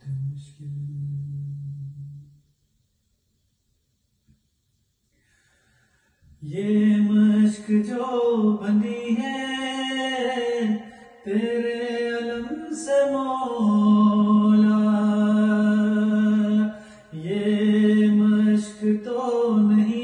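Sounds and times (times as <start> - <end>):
man chanting: 0.0 - 2.3, 6.4 - 20.0.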